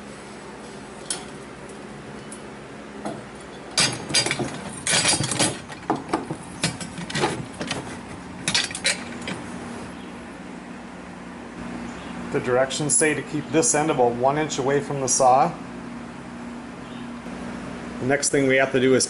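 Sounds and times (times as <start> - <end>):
metal chain clinking and rattling: 3.1 - 9.5.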